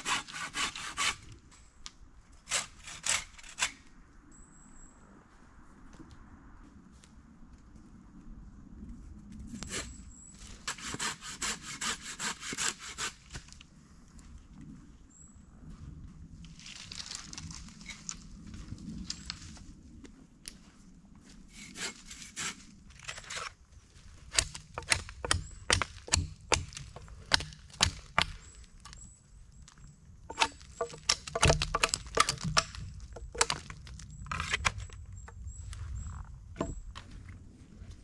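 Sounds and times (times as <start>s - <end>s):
dry wood cracking and knocking: 24.3s - 29.0s, 30.3s - 35.4s, 36.6s - 37.2s.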